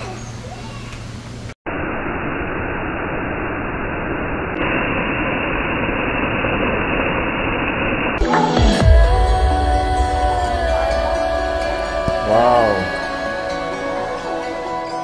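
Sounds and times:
music: 8.2 - 15.0.

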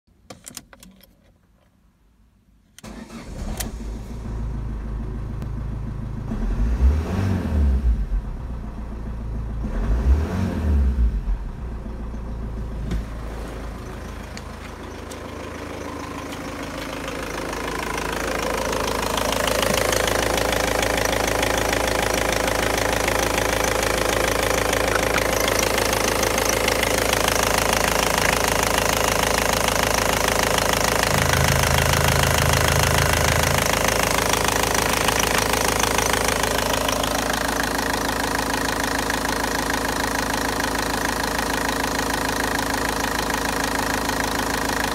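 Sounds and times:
diesel car engine idling: 2.9 - 6.7, 11.2 - 44.9
engine revving: 6.2 - 8.4, 9.6 - 11.6, 15.4 - 38.8.

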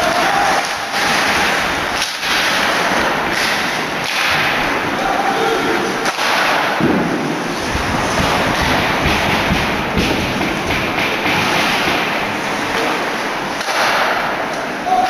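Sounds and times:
hockey sticks and puck cracking: 0.0 - 15.0.

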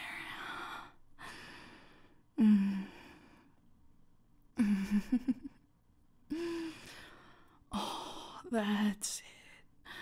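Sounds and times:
woman sighing and moaning: 2.4 - 3.4, 4.6 - 5.6, 6.3 - 8.5.

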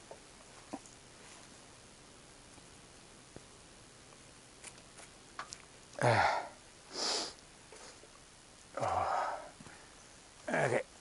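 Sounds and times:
low grunt: 6.0 - 6.6, 8.8 - 9.5
person sniffing and snorting: 6.9 - 8.0.

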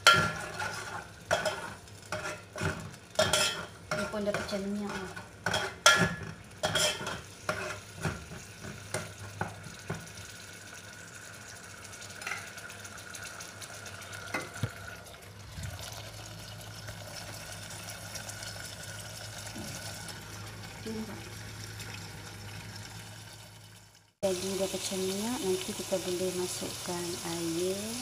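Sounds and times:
metal utensil scraping a pot: 0.0 - 8.6
paste sizzling in oil: 0.0 - 14.4, 24.2 - 28.0.

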